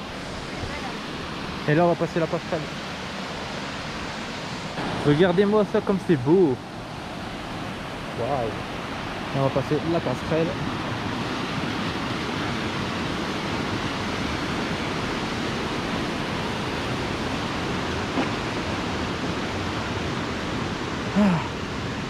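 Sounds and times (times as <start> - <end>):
mountain stream rushing: 0.0 - 22.0.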